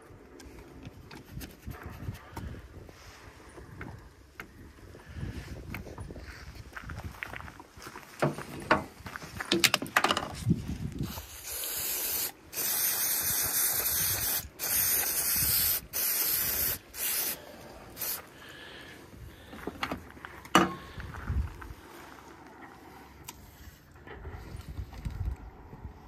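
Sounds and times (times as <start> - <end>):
aerosol spray can hissing: 11.0 - 18.2.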